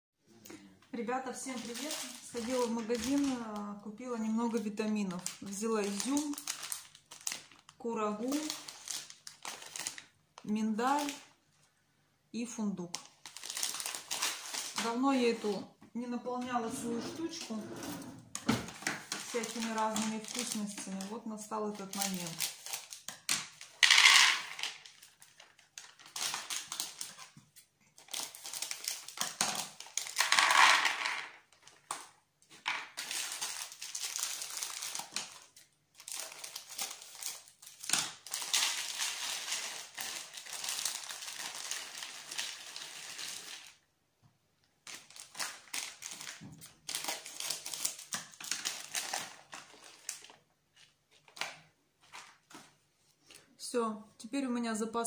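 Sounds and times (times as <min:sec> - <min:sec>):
plastic packets crinkling: 0:01.3 - 0:11.3, 0:12.9 - 0:15.6, 0:18.6 - 0:43.8, 0:44.8 - 0:53.4
nuts rattling into plastic dish: 0:23.6 - 0:24.9, 0:29.0 - 0:31.4.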